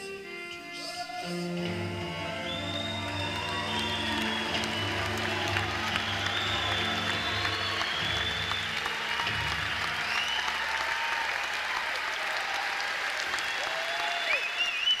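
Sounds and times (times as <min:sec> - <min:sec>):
shrill whistles: 0:00.7 - 0:10.9, 0:13.2 - 0:15.0
audience applauding: 0:02.2 - 0:15.0.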